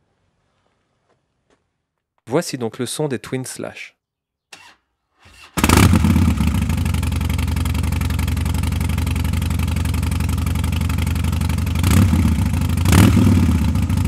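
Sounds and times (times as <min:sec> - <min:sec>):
motorcycle engine idling: 0:05.5 - 0:14.0.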